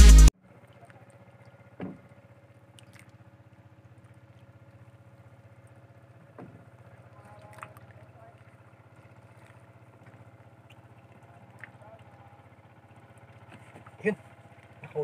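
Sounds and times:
electronic music: 0.0s - 0.3s
distant motorboat engine hum: 0.0s - 15.0s.

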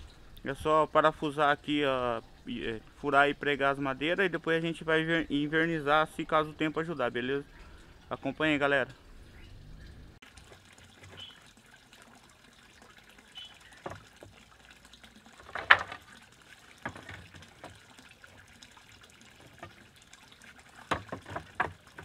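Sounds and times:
trickle of pond water: 0.0s - 22.0s
wooden planks knocking: 15.4s - 16.1s, 16.8s - 17.8s, 20.8s - 22.0s.

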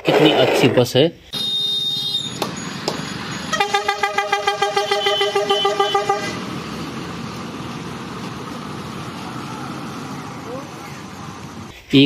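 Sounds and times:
bus engine and tyres passing: 1.3s - 11.8s
bus horn rapid pulses: 1.4s - 6.4s.

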